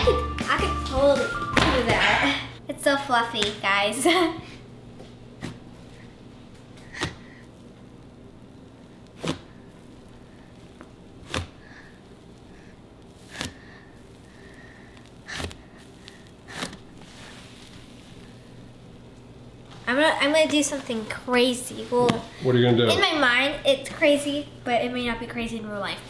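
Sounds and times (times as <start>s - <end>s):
hands squeezing fluffy slime: 14.9s - 18.4s.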